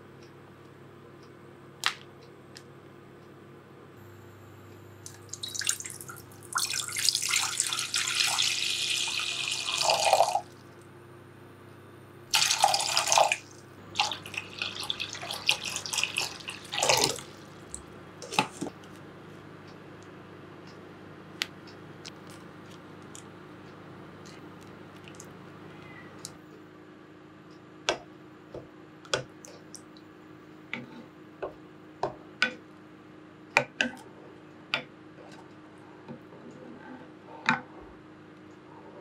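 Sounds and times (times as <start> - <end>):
tap water running into sink: 5.1 - 10.4, 14.0 - 17.4.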